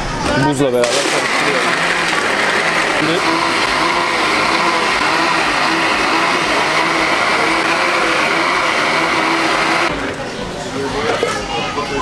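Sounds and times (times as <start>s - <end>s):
electric blender running: 0.8s - 9.9s.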